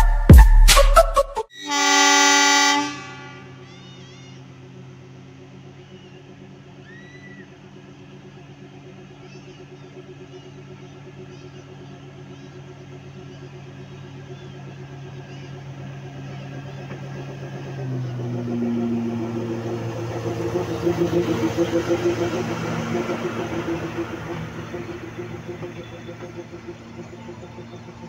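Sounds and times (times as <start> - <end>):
locomotive horn blast: 1.5 - 4.5
diesel locomotive engine humming: 1.5 - 28.0
birds chirping: 3.1 - 28.0.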